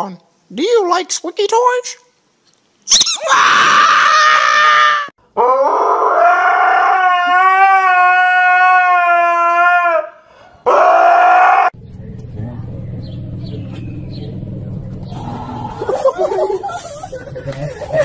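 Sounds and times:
husky howling: 0:03.2 - 0:17.4.

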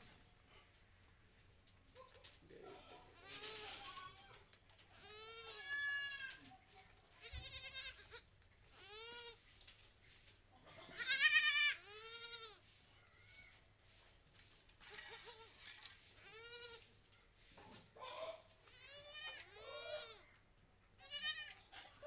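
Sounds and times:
goat kid bleating: 0:02.8 - 0:09.4, 0:10.8 - 0:13.6, 0:14.8 - 0:16.9, 0:18.2 - 0:20.4, 0:21.0 - 0:22.0.

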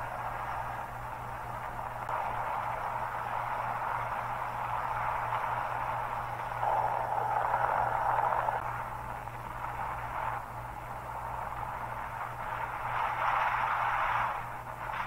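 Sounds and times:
helicopter hum: 0:00.0 - 0:13.4
wind rushing: 0:05.6 - 0:09.1.

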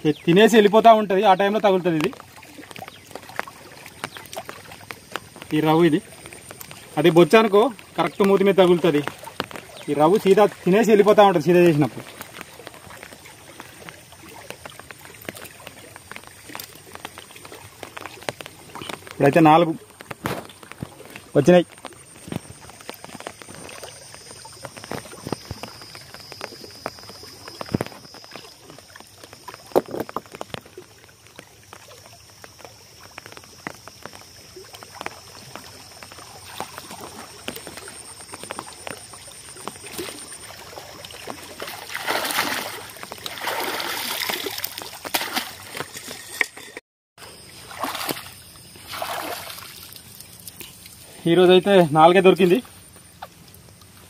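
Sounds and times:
water splashing against rocks: 0:00.0 - 0:54.0
small knocks and clicks: 0:12.0 - 0:34.2.

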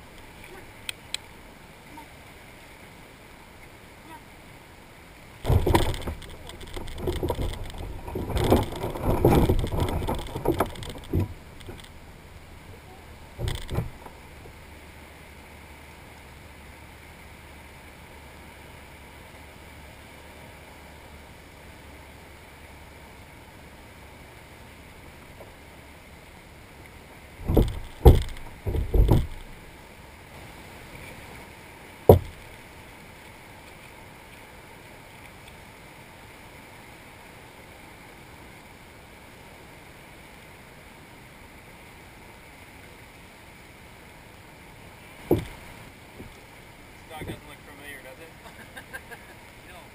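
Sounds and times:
surf washing: 0:00.0 - 0:49.9
heavy thumps: 0:05.5 - 0:12.0, 0:13.3 - 0:14.2, 0:27.4 - 0:29.6, 0:32.1 - 0:32.4, 0:45.2 - 0:46.3
scuffing and bumping on kayak hull: 0:05.5 - 0:12.7, 0:13.3 - 0:14.2, 0:27.4 - 0:29.6, 0:32.1 - 0:32.4, 0:45.2 - 0:46.4
sharp knock: 0:27.4 - 0:29.4, 0:32.1 - 0:32.4.

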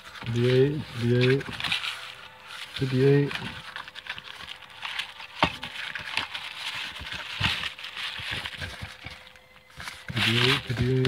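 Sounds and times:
cardboard rustling and scraping: 0:00.0 - 0:11.0.

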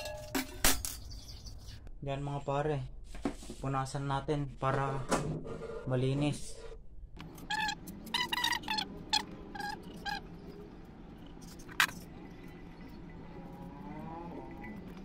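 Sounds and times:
rag rubbing bicycle hubs: 0:07.4 - 0:10.2.

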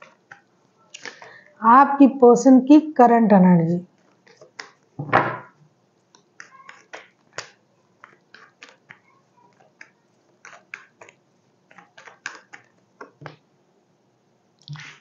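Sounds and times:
cards being shuffled: 0:06.2 - 0:13.4.

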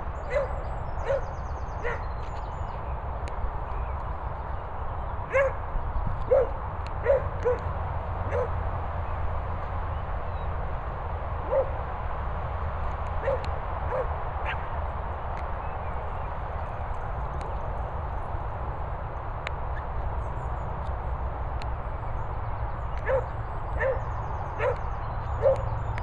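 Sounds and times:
dog yipping and barking: 0:00.3 - 0:02.0, 0:05.3 - 0:05.6, 0:06.3 - 0:07.7, 0:08.3 - 0:08.5, 0:13.2 - 0:14.6, 0:23.0 - 0:24.0, 0:24.6 - 0:24.8, 0:25.4 - 0:25.6.

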